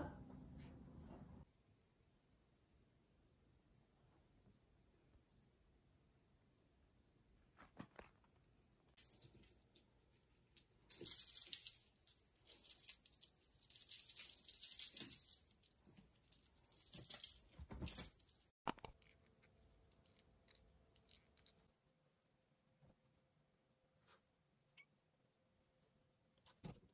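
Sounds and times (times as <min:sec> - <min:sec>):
cat toy jingling and rattling: 0:09.0 - 0:09.7, 0:10.9 - 0:18.5.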